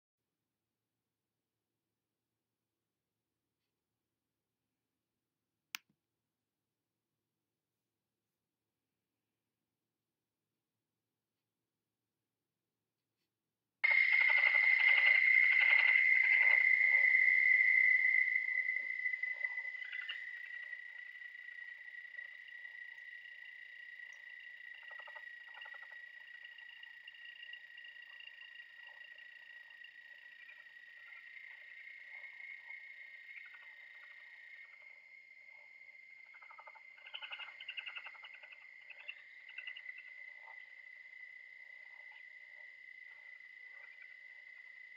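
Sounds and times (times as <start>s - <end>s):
steady high-pitched tone: 13.8s - 27.8s
rapid chirping pulses: 13.8s - 32.2s.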